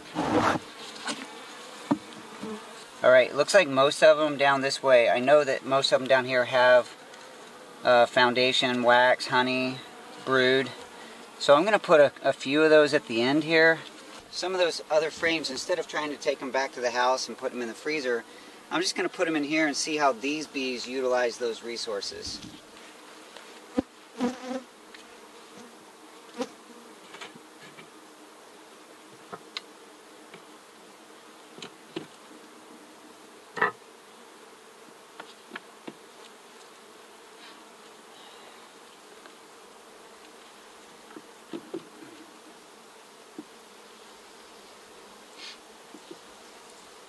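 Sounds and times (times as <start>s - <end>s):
honeybees buzzing: 0.0s - 47.0s
wooden knocks of hive frames: 0.2s - 2.8s, 29.2s - 29.6s, 31.5s - 32.2s, 33.5s - 33.9s, 35.1s - 36.3s, 41.0s - 42.2s, 43.3s - 43.6s.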